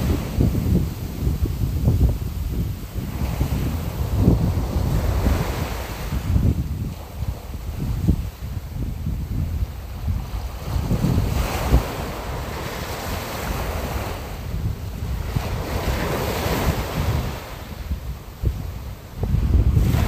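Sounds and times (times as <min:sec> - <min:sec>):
sea surf rushing: 0:00.0 - 0:20.0
wind buffeting microphone: 0:00.0 - 0:20.0.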